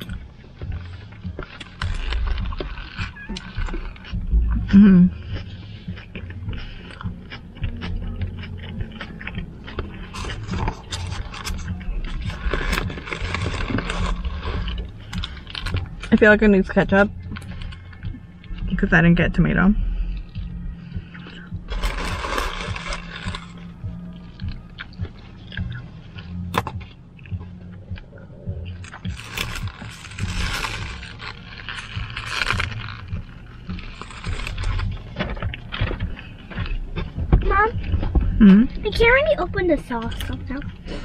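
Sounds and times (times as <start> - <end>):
person chewing food: 0.0 - 16.2, 17.1 - 18.7, 19.8 - 38.9
wet mouth sounds: 0.0 - 16.2, 19.8 - 38.8
low steady rumble: 0.0 - 41.0
paper wrapper crackling: 10.2 - 16.2, 21.7 - 23.8, 28.8 - 36.2.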